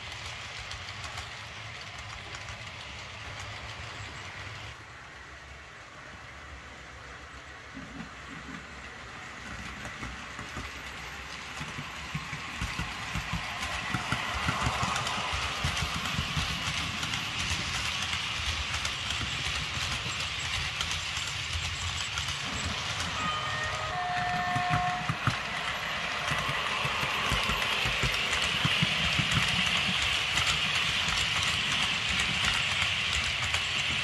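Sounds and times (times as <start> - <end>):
model locomotive engine sound: 0.0 - 34.0
wagon wheels rattling on track: 9.6 - 34.0.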